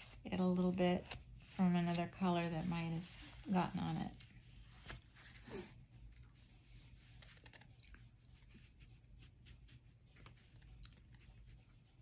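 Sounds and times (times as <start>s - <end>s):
oil pastel scratching on paper: 0.0s - 5.6s, 8.2s - 12.0s.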